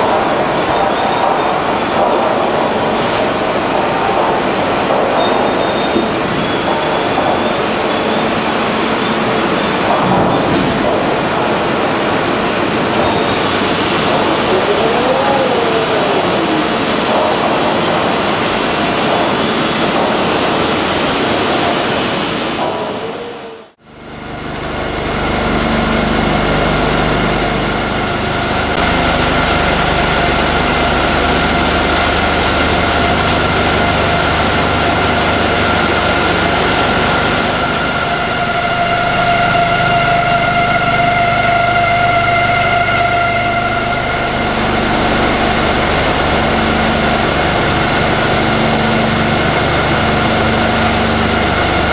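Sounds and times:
drilling machinery whine: 0.0s - 22.8s, 23.8s - 51.9s
shale shakers humming: 24.2s - 51.9s.

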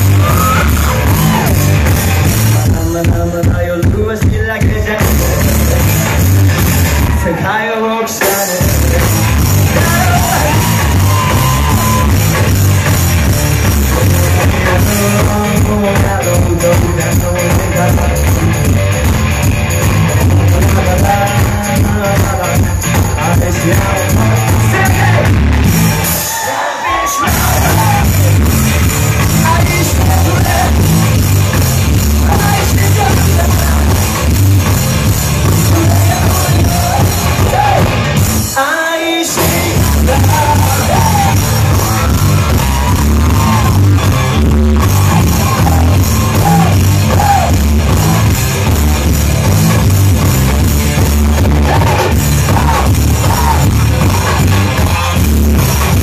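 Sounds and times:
live rock band: 0.0s - 56.0s
man singing: 2.6s - 12.2s, 13.7s - 19.3s, 20.2s - 25.5s, 26.7s - 31.2s, 32.0s - 34.8s, 35.4s - 43.8s, 45.0s - 48.3s, 51.3s - 55.1s.

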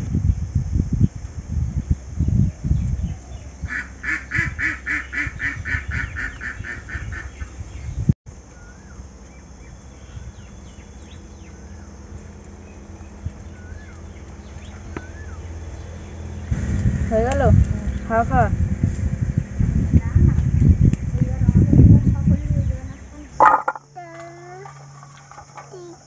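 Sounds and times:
duck quacking rapidly: 3.7s - 7.4s
small bird chirping: 4.6s - 26.0s.

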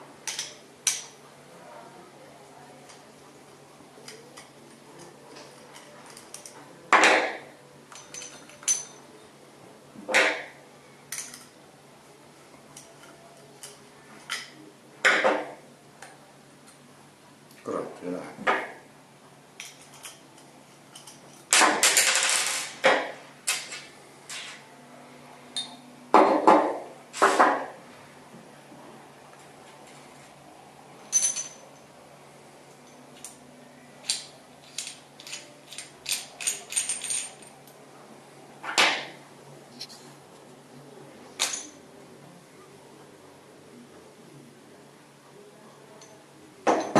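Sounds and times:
metal clinks and knocks: 7.9s - 9.0s, 19.6s - 22.6s, 31.1s - 31.9s, 34.0s - 37.8s
ringing clink: 25.6s - 25.8s, 31.1s - 31.9s.

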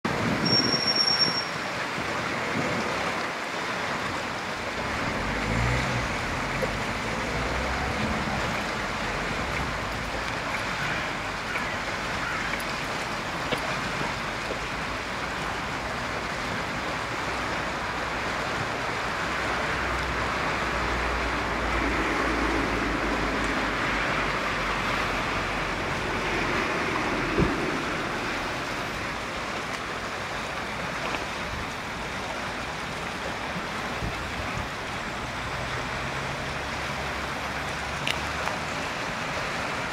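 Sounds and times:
road traffic rumble: 0.0s - 39.9s
river rushing: 0.1s - 39.9s
short high beep: 0.4s - 1.6s.

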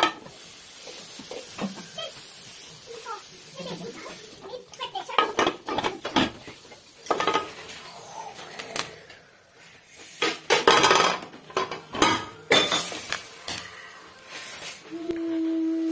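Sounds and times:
metal pot and lid clattering: 5.1s - 6.4s, 7.0s - 7.6s, 10.5s - 13.1s.

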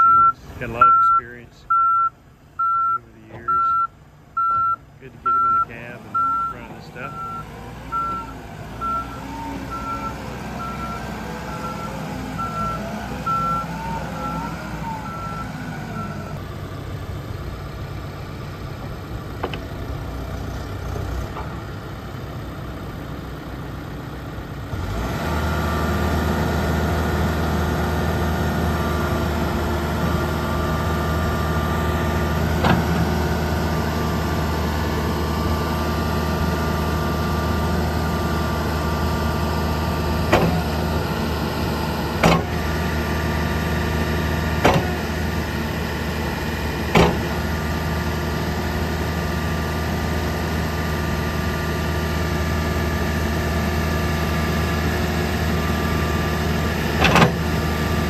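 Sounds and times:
reversing alarm beeping: 0.0s - 16.4s
diesel engine running: 0.0s - 58.0s.

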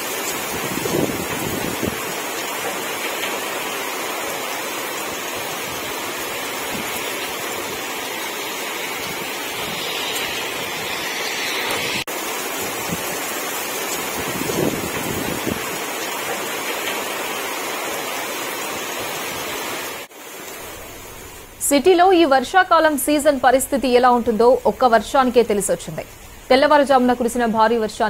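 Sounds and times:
floodwater flowing: 0.0s - 21.5s
heavy rain downpour: 0.0s - 28.0s.

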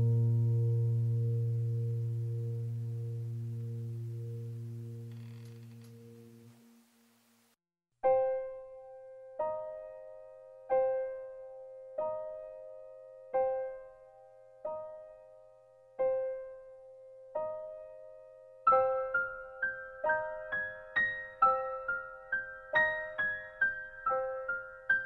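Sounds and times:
slow soft piano music: 0.0s - 6.8s, 8.0s - 25.0s.

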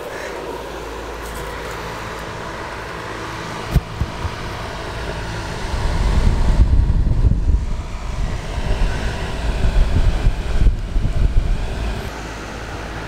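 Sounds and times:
exhaust fan running: 0.0s - 13.0s
air buffeting microphone: 3.5s - 12.1s.

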